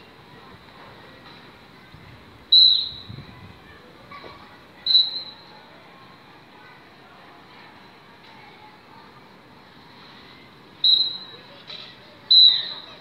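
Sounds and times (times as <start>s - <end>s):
sharp high-pitched chirps: 2.6s - 3.1s, 4.9s - 5.4s, 12.3s - 13.0s.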